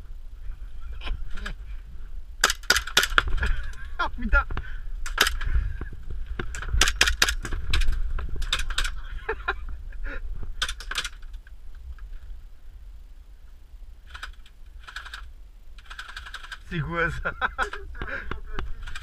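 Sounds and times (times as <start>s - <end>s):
airsoft gunfire: 2.4s - 3.3s, 5.1s - 5.4s, 6.7s - 7.5s.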